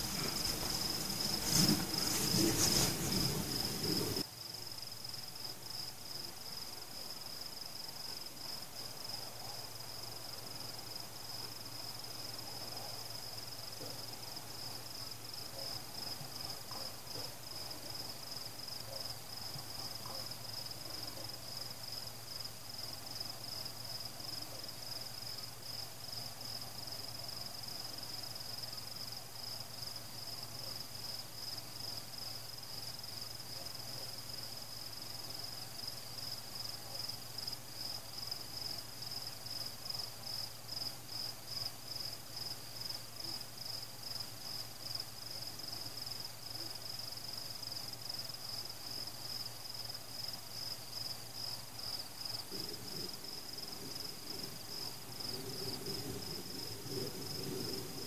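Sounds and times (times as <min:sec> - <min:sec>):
crickets chirping: 0:00.0 - 0:58.0
faint low hum: 0:00.0 - 0:58.0.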